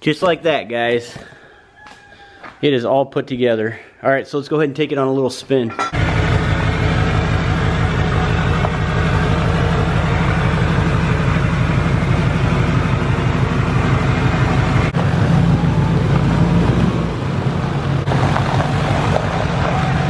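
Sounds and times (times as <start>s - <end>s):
loud diesel truck engine: 6.0s - 20.0s.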